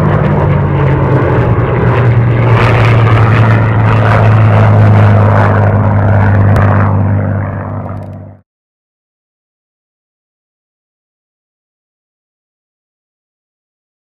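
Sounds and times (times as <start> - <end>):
propeller planes flying by: 0.0 - 8.4.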